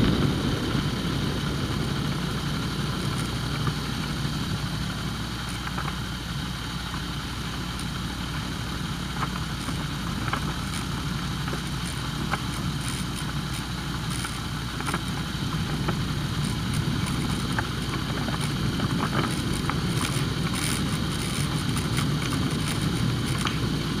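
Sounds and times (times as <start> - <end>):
microlight engine running: 0.0 - 24.0
noisy rush: 0.0 - 24.0
light clicks and rattles: 9.2 - 23.7.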